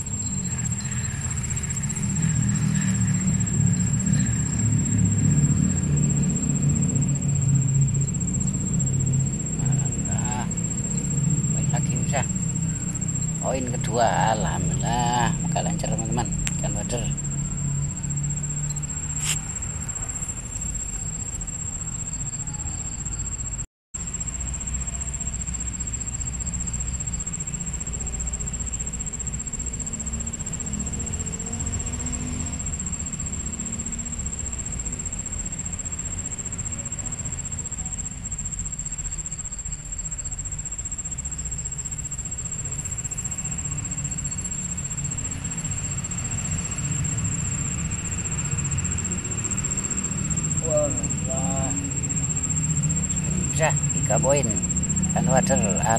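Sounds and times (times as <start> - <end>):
low rumble: 0.0 - 21.8
high-pitched whine: 0.0 - 55.9.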